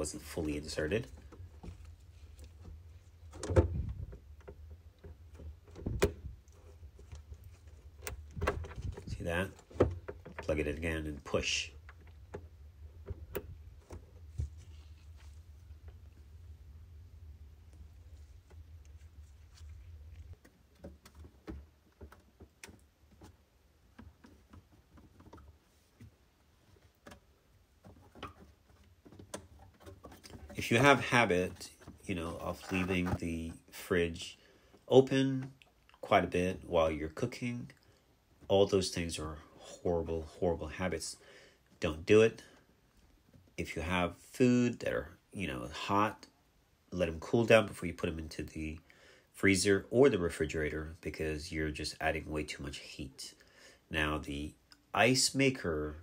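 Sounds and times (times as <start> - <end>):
plastic connectors ticking and rustling: 18.1 - 31.2.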